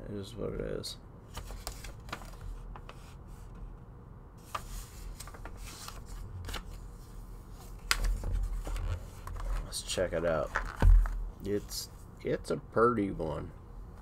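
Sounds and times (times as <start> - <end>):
paper rustling and crinkling: 1.3 - 3.0, 4.4 - 9.8.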